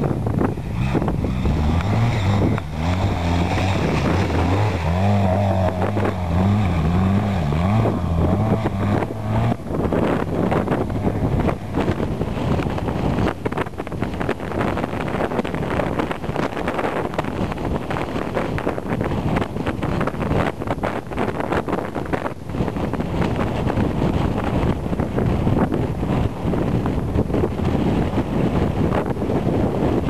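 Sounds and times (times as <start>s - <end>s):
quad bike engine revving: 0.0s - 20.5s
wind buffeting microphone: 0.0s - 30.0s.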